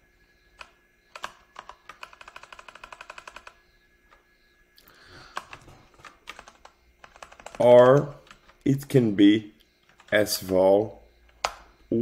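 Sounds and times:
keyboard keys clicking: 0:00.5 - 0:04.2, 0:05.3 - 0:08.7, 0:09.8 - 0:11.6.

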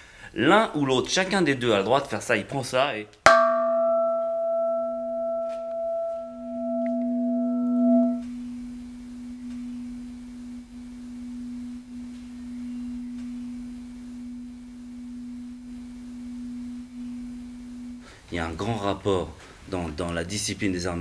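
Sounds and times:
metal bell ringing: 0:03.3 - 0:08.2.

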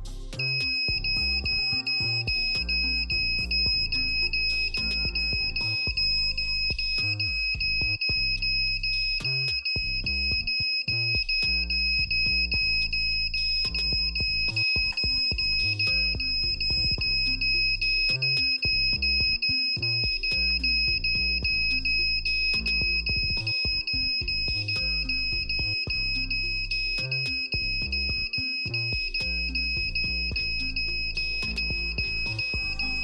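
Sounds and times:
background music with beat: 0:00.0 - 0:33.0
alarm buzzer high-pitched tone: 0:00.4 - 0:33.0.

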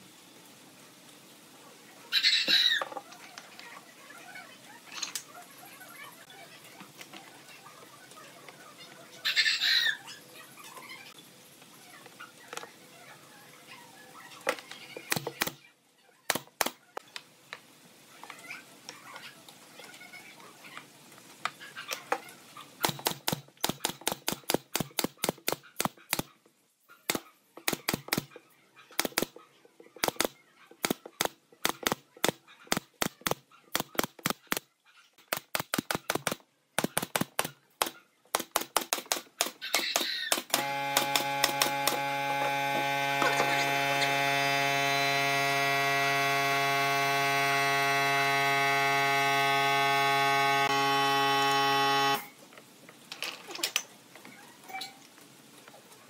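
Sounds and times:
pneumatic nailer firing: 0:15.1 - 0:15.6, 0:22.8 - 0:26.3, 0:27.1 - 0:28.3, 0:29.0 - 0:29.3, 0:30.0 - 0:34.6, 0:35.3 - 0:52.3
loud steady hum: 0:40.5 - 0:52.3.

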